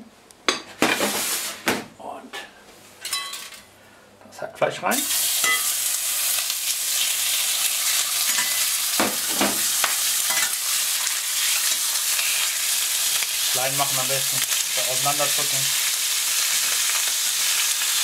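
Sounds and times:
meat sizzling in a frying pan: 0:05.0 - 0:18.0.

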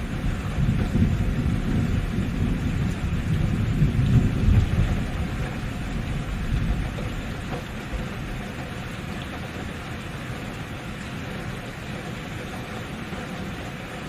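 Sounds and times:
rolling thunder rumble: 0:00.0 - 0:09.7
steady rain: 0:00.0 - 0:14.0.

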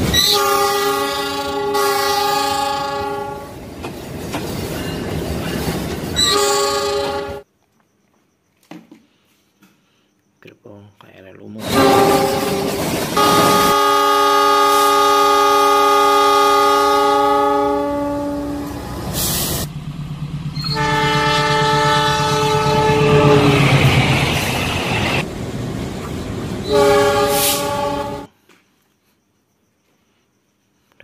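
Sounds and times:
train horn blasts: 0:00.2 - 0:03.6, 0:06.2 - 0:07.4, 0:11.6 - 0:18.9, 0:20.6 - 0:23.8, 0:26.6 - 0:28.4
diesel locomotive rumble: 0:16.7 - 0:28.3.

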